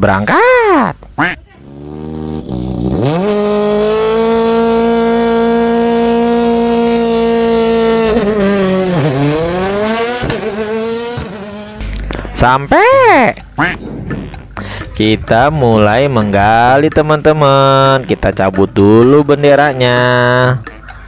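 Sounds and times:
vehicle engine revving: 1.2s - 12.3s, 13.4s - 15.8s.

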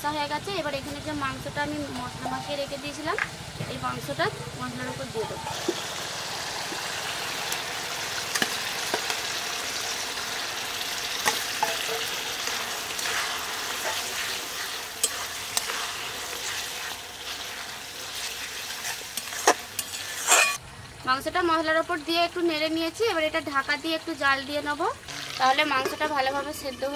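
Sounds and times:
chicken sizzling in a pan: 4.7s - 20.6s, 21.5s - 26.9s
spatula scraping a metal pan: 11.2s - 20.6s.

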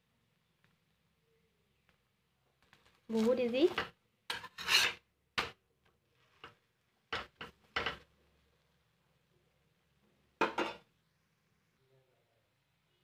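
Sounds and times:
metal spatula scraping iron griddle: 4.3s - 5.0s.

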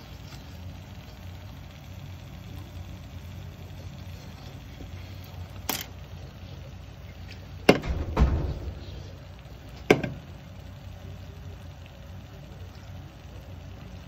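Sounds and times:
gas burner rumbling: 0.0s - 14.0s
sharp clicks and knocks: 7.7s - 9.2s, 9.8s - 10.3s.

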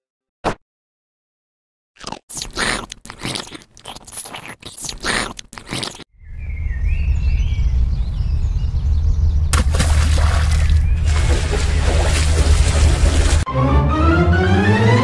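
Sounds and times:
cat crunching pumpkin rind: 2.0s - 6.0s
steady low rumble: 6.2s - 13.4s.

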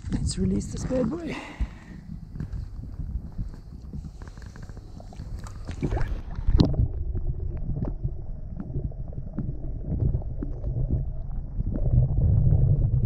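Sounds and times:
underwater rumbling churn: 0.5s - 13.0s
small underwater clicks: 1.8s - 12.9s
splash into water: 5.4s - 6.7s.

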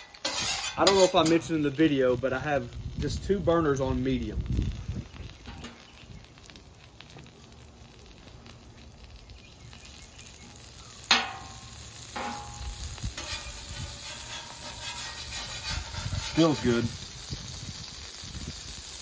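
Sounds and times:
metal blade clinking on griddle: 0.0s - 1.7s, 11.1s - 17.0s
butter sizzling on griddle: 0.0s - 19.0s.

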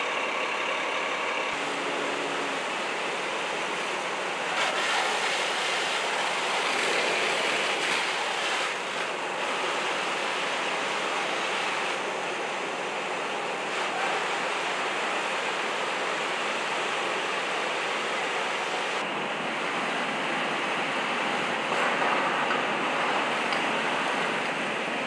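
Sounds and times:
water spray hissing: 4.4s - 12.0s.

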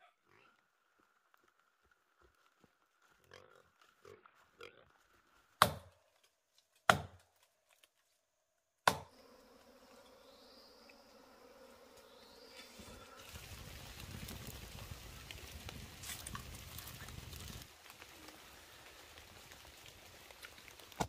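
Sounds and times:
honeybees buzzing: 9.1s - 20.9s.

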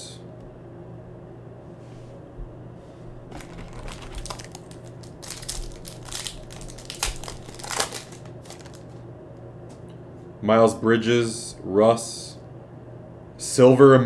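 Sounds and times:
foil wrapper crinkling and tearing: 3.3s - 9.0s.

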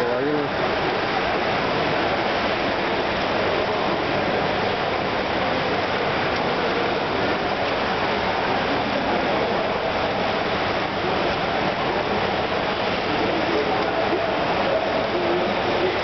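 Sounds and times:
pool water washing: 0.0s - 16.0s
swimmers splashing: 5.4s - 16.0s.

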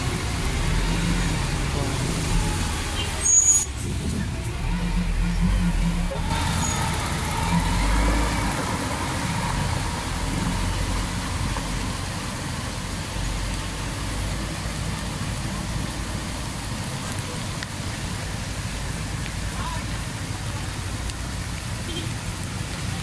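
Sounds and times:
water hissing: 0.0s - 16.7s
diesel truck engine: 0.0s - 19.2s
street traffic: 0.0s - 23.0s.

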